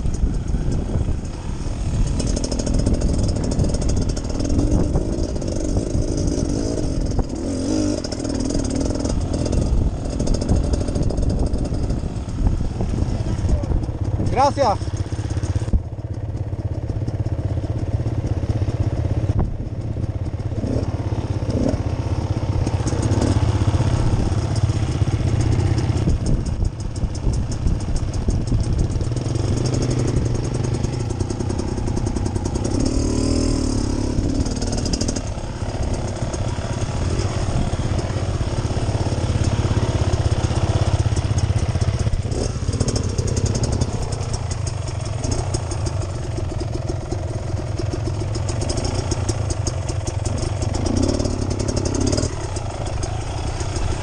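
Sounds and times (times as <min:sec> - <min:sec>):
dirt bike engine running: 0:00.0 - 0:54.0.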